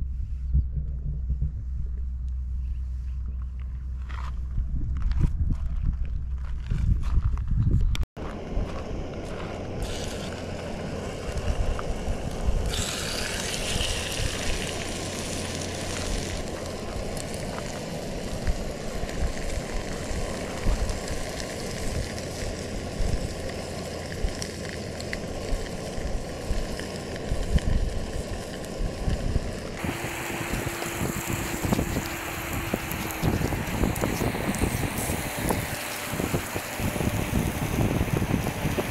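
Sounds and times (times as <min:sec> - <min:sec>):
fish sizzling in hot oil: 0:09.8 - 0:38.9.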